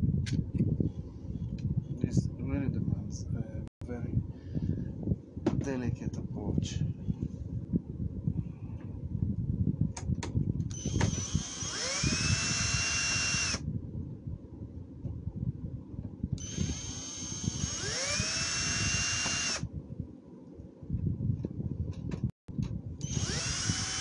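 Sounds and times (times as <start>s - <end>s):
electric screwdriver whining: 10.7s - 13.6s, 16.4s - 19.6s, 23.0s - 24.0s.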